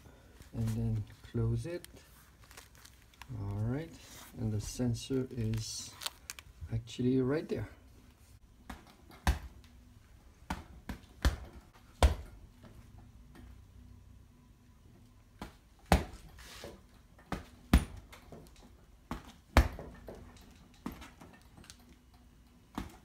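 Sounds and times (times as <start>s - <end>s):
punches thudding into punching bag: 8.6s - 9.6s, 10.4s - 12.4s, 15.4s - 16.3s, 17.3s - 18.2s, 19.1s - 20.1s.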